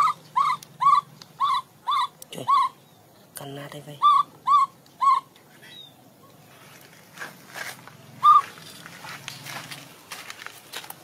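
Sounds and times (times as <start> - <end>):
baby monkey call: 0.0 - 3.0, 4.0 - 5.9, 8.2 - 8.6.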